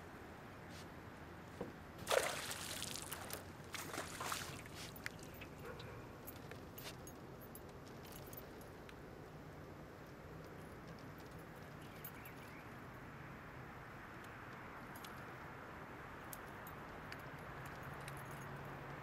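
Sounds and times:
fish thrashing at water surface: 0:02.0 - 0:04.8
sharp water splashes: 0:02.0 - 0:04.8
light water sounds: 0:02.0 - 0:06.0.

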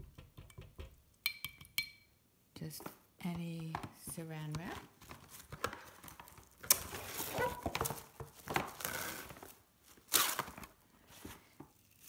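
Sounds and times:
handling rustling: 0:02.8 - 0:11.8.

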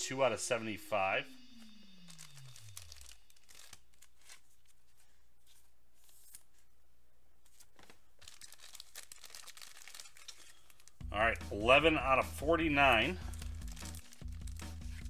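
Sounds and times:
foil wrapper tearing and crinkling: 0:01.5 - 0:04.8, 0:07.8 - 0:11.0, 0:13.2 - 0:15.0
cards rustling and clicking: 0:01.6 - 0:06.7, 0:07.4 - 0:11.0, 0:13.2 - 0:15.0.

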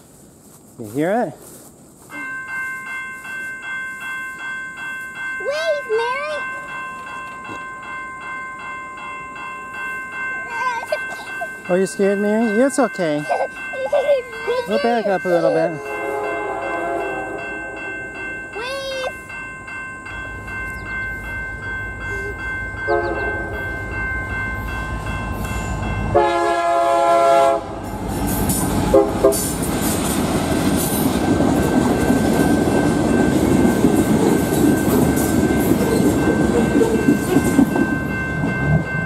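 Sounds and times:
crossing bell ringing: 0:00.9 - 0:39.0
boxcars rumbling on rails: 0:10.1 - 0:39.0
train horn: 0:15.8 - 0:18.1, 0:26.1 - 0:27.9, 0:28.9 - 0:29.5.

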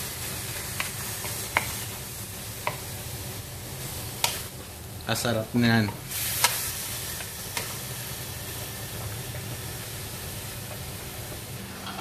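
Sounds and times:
meat sizzling in a pan: 0:00.0 - 0:12.0
spatula tapping pan: 0:00.7 - 0:01.9, 0:02.6 - 0:02.9.

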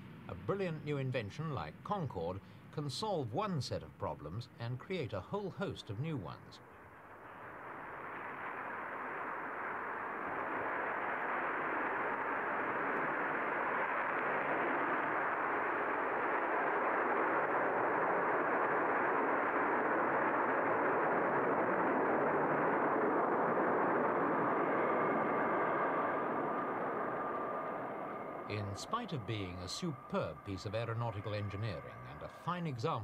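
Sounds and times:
jet aircraft taking off: 0:06.6 - 0:33.0.

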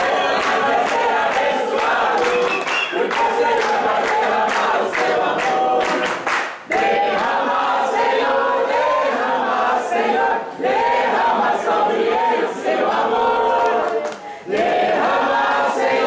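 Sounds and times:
hands clapping along: 0:00.0 - 0:08.2, 0:13.4 - 0:16.0
group singing a birthday tune: 0:00.0 - 0:16.0.

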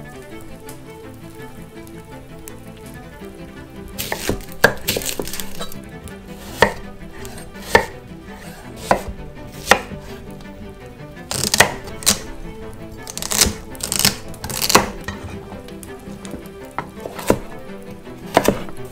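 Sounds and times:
knife slicing vegetables: 0:04.0 - 0:05.8, 0:06.4 - 0:10.2, 0:11.3 - 0:12.3, 0:13.1 - 0:15.3, 0:16.3 - 0:17.5, 0:18.3 - 0:18.9.

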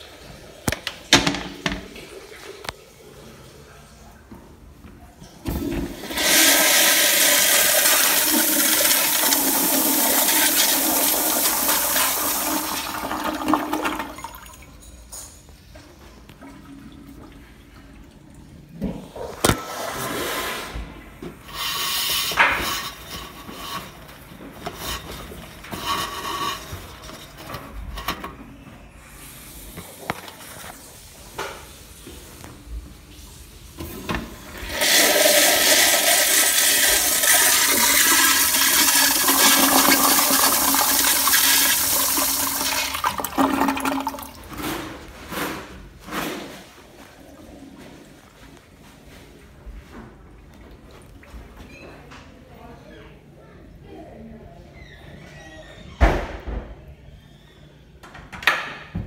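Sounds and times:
toilet flushing: 0:00.0 - 0:04.7, 0:05.4 - 0:15.2, 0:15.9 - 0:48.5.

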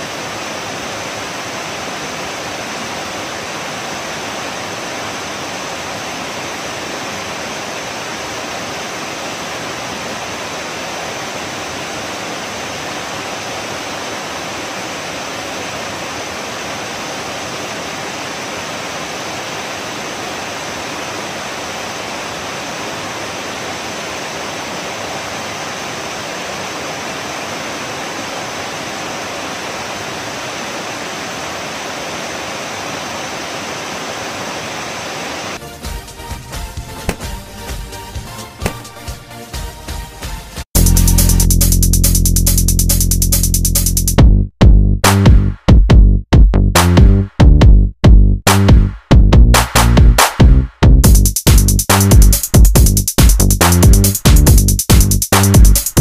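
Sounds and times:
waterfall pouring into pool: 0:00.0 - 0:35.6.

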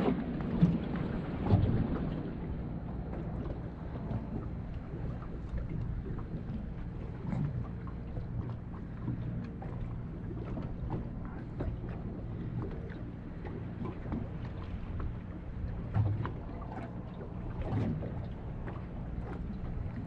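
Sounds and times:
waves lapping against boat hull: 0:00.0 - 0:20.0
wind rumbling on microphone: 0:00.0 - 0:20.0.

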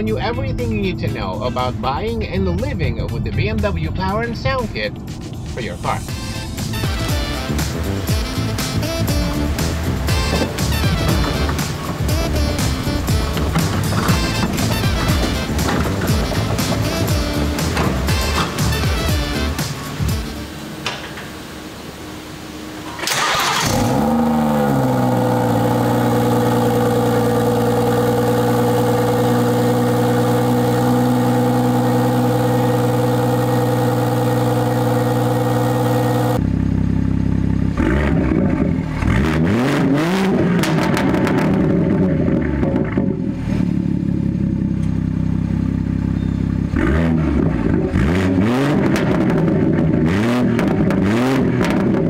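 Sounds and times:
car engine starting and idling: 0:00.0 - 0:52.0
car engine revving: 0:04.2 - 0:52.0.

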